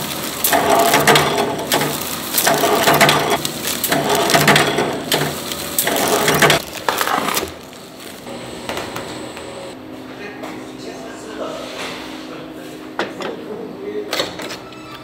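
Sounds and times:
plastic bags crinkling: 0.0s - 8.3s
room noise: 0.0s - 14.7s.

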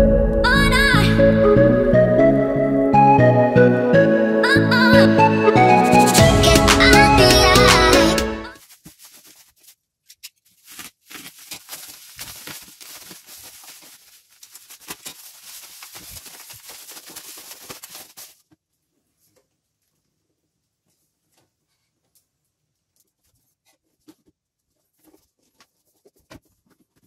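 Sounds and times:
bubble wrap crinkling and crackling: 8.5s - 18.6s
cardboard box rustling: 8.6s - 18.4s.

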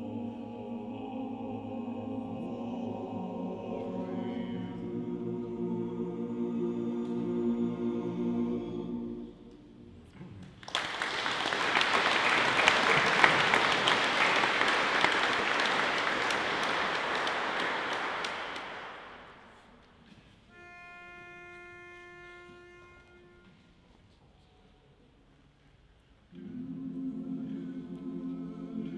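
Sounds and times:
male chorus singing a cappella: 0.0s - 9.5s, 26.3s - 28.9s
audience applause: 10.5s - 19.5s.

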